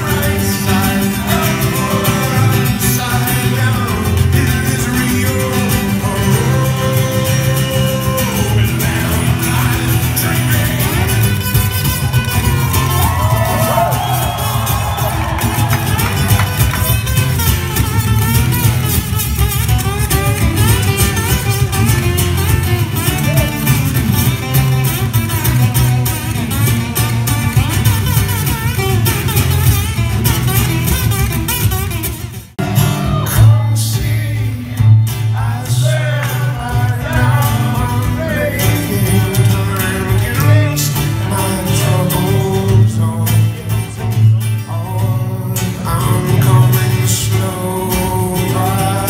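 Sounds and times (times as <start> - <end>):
person singing: 0.0 - 11.4, 32.6 - 49.0
two acoustic guitars playing: 0.0 - 49.0.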